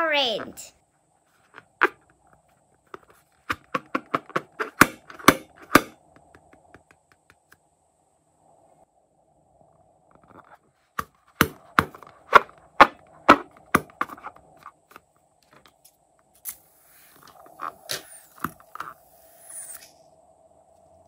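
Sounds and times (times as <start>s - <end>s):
rubber balloon clicking and crackling: 2.9s - 7.6s, 11.0s - 15.0s.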